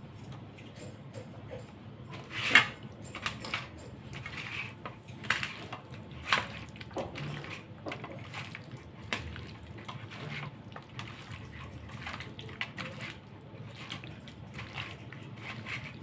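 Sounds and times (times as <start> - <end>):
wet squelching of marinated chicken: 4.2 - 16.0.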